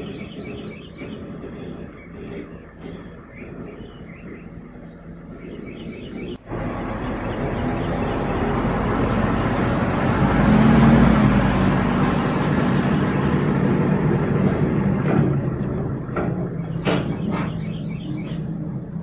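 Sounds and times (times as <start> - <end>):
pickup truck driving past: 6.4 - 16.1.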